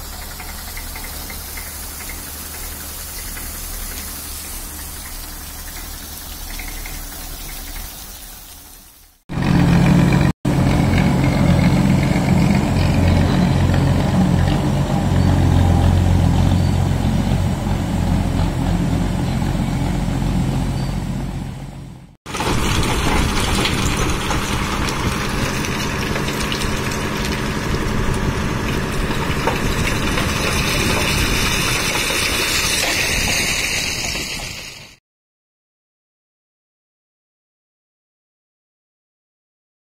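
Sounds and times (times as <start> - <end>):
road roller engine running: 9.3 - 35.0.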